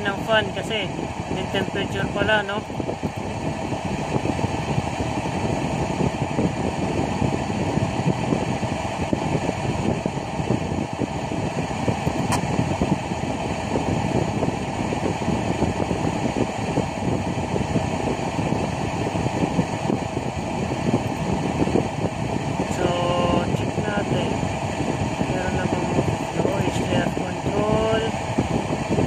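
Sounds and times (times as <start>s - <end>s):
engine-room machinery drone: 0.0s - 29.0s
sharp click: 12.2s - 12.5s.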